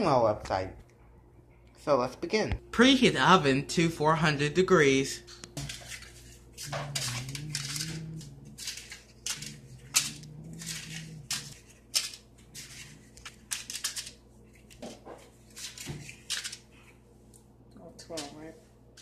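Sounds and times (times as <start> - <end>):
paper liners crinkling: 5.5 - 17.0.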